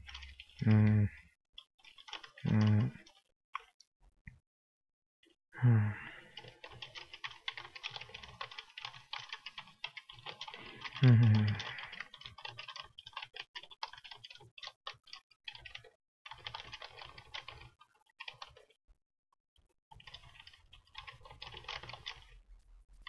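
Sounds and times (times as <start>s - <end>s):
typing on computer keyboard: 0.0s - 0.6s, 1.8s - 3.8s, 6.3s - 18.8s, 19.9s - 22.4s.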